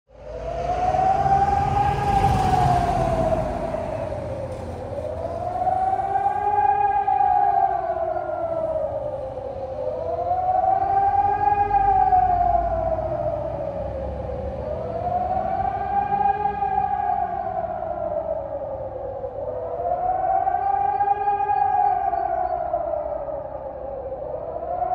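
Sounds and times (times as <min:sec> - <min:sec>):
warning siren wailing: 0:00.1 - 0:24.9.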